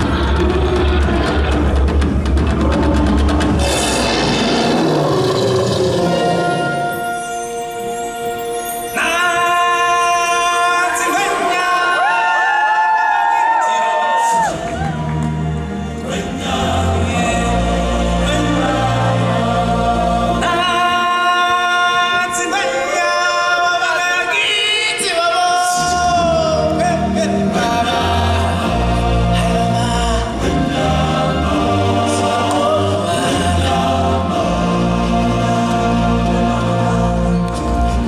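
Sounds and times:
choir and solo voices singing: 0.0 - 7.0, 8.9 - 38.0.

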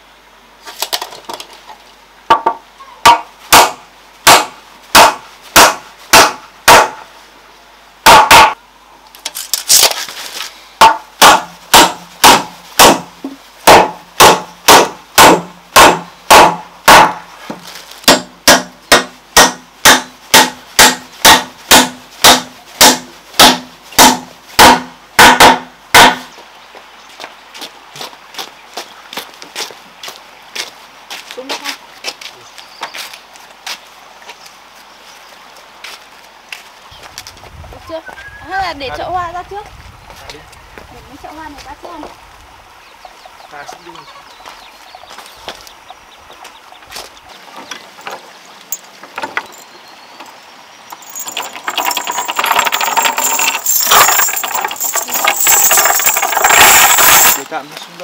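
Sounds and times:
hammer driving nails into wood: 18.0 - 26.2.

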